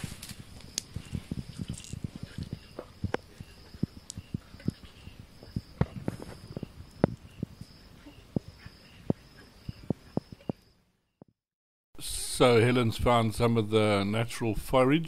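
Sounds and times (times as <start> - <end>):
soft taps and rustles of grass: 0.0 - 7.7
faint insect chirping: 0.0 - 10.9.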